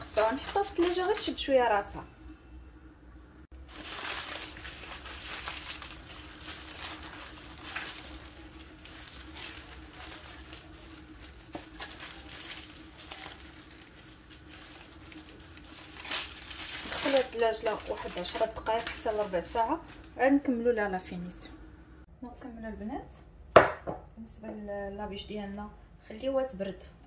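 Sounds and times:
rustling and crinkling: 0.0 - 1.5, 3.6 - 20.5
faint hum: 0.0 - 27.0.

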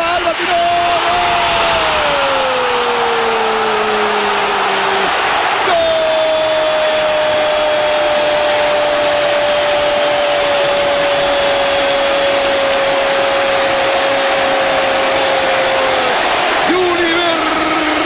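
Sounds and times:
commentator's drawn-out goal cry: 0.0 - 10.4, 13.2 - 18.0
stadium crowd cheering: 0.0 - 18.0.

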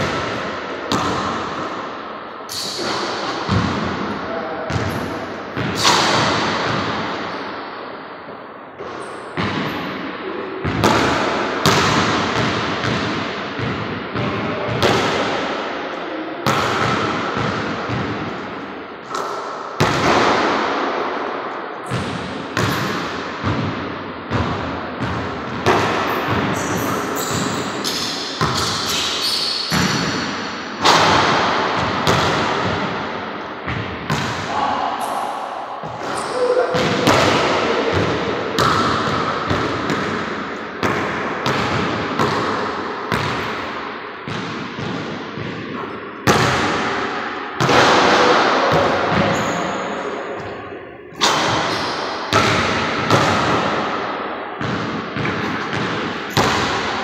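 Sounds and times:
basketball bouncing on wooden floor: 3.4 - 4.0, 4.7 - 5.0, 8.8 - 9.7, 10.6 - 15.2, 16.4 - 18.3, 21.9 - 30.2, 30.8 - 33.0, 35.8 - 43.7, 44.3 - 46.9, 51.2 - 53.8, 54.6 - 56.9.

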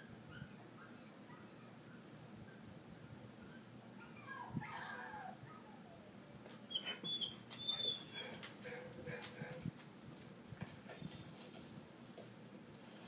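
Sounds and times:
dog whimpering and whining: 0.0 - 8.4.

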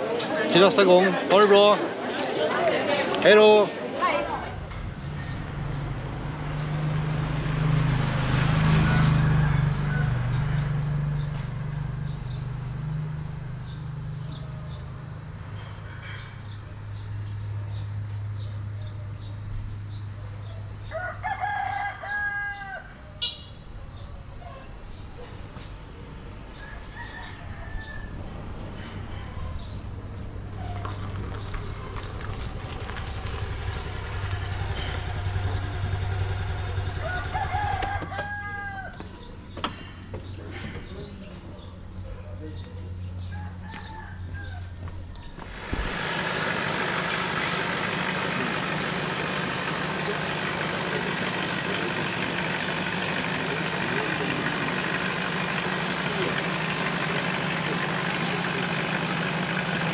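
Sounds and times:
steady high-pitched whine: 0.0 - 59.9
low hum: 3.8 - 22.0, 22.6 - 59.9
rooster crowing: 4.3 - 12.2, 20.4 - 24.4, 26.3 - 31.8, 32.9 - 39.6, 43.0 - 59.9.

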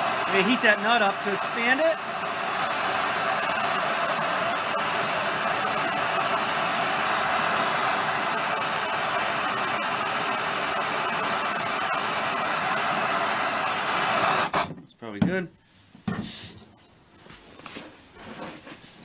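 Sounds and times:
gas torch hissing: 0.0 - 14.8.

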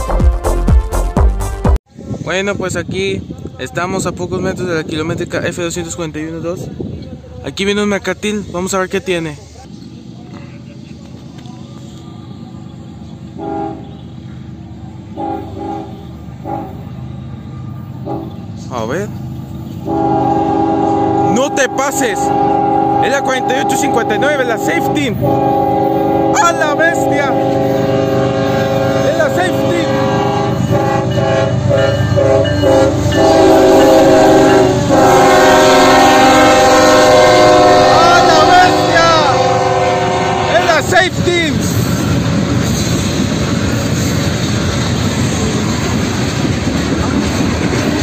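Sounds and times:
train rumble: 1.9 - 48.0
locomotive air horn blasts: 13.4 - 14.2, 15.2 - 16.8, 18.0 - 18.4, 19.8 - 40.9.

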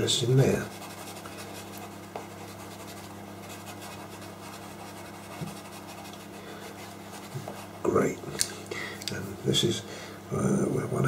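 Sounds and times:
steady low hum: 0.0 - 11.0
pastel pencil scratching paper: 0.4 - 7.9.

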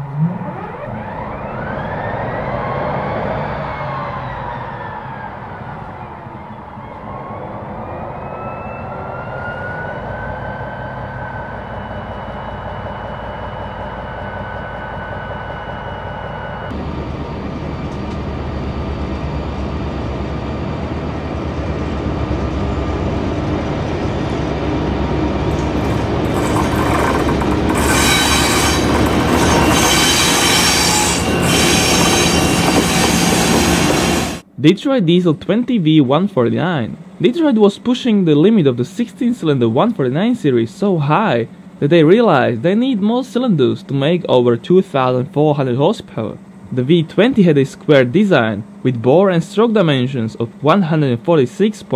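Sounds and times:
diesel locomotive engine whine: 0.0 - 34.6, 35.3 - 51.9
locomotive engine drone: 0.0 - 51.9
train wheel clatter: 25.5 - 34.4
train wheel squeal: 25.5 - 34.4.

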